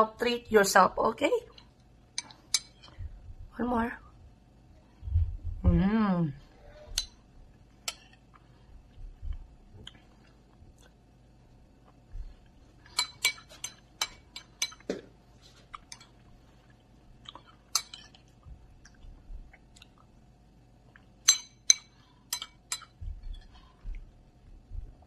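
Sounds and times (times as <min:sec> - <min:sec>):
quiet chewing: 0:06.8 - 0:14.5, 0:15.4 - 0:20.2, 0:20.8 - 0:21.2
metal spoon clinking on bowl: 0:21.2 - 0:23.0.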